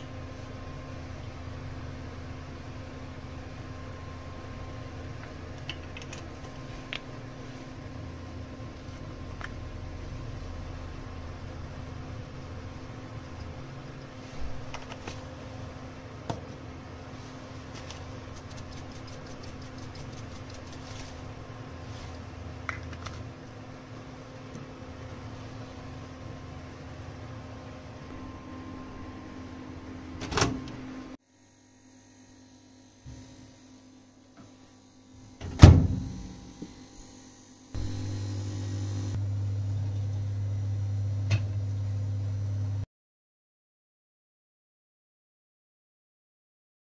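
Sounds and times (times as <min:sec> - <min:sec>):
steady low hum: 0:00.0 - 0:42.8
spice shakers rattling: 0:18.3 - 0:21.2.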